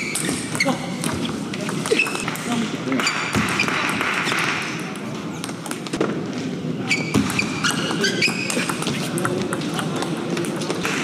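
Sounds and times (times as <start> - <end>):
shoes squeaking on floor: 0.0 - 2.3, 6.8 - 9.2.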